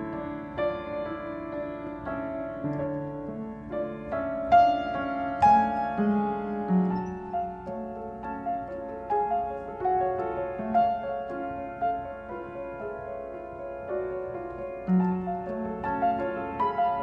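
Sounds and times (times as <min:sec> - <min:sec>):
slow soft piano music: 0:00.0 - 0:17.0.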